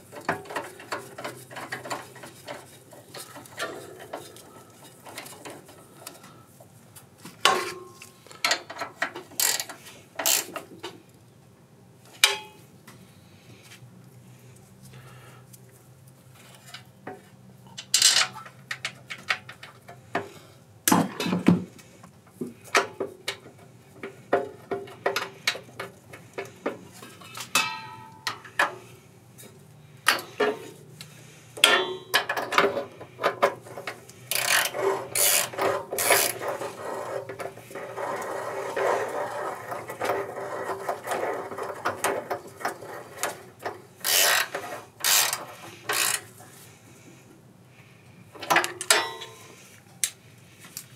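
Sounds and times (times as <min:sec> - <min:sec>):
sharp clicks and knocks of tools: 0:30.0 - 0:36.5, 0:48.4 - 0:50.9
scraping and rubbing: 0:33.0 - 0:47.2.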